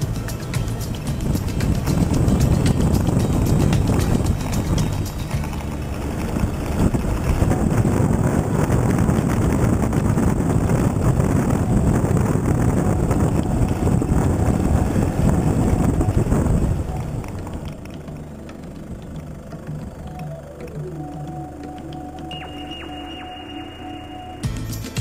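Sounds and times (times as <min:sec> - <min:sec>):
wind buffeting microphone: 0:00.0 - 0:22.5
vehicle engine and tyres rumbling: 0:00.0 - 0:25.0.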